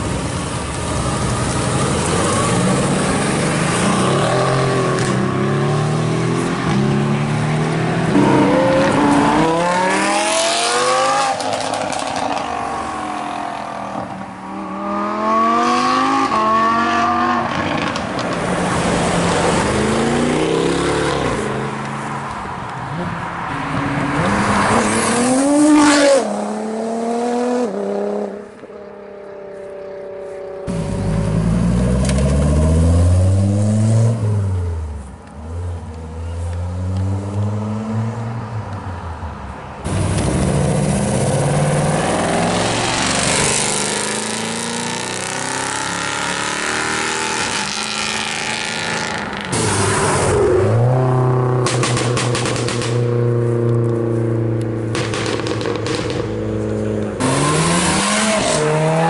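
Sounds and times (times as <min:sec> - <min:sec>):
engines revving and shifting gears: 0:01.0 - 0:39.2, 0:39.9 - 0:59.0
sports cars accelerating hard: 0:01.7 - 0:22.0, 0:39.8 - 0:59.0.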